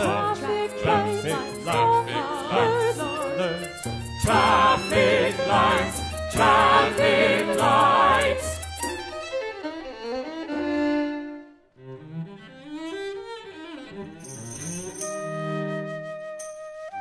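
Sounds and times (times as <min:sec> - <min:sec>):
singers with wide vibrato: 0:00.0 - 0:08.8
chamber ensemble held notes: 0:00.0 - 0:09.1.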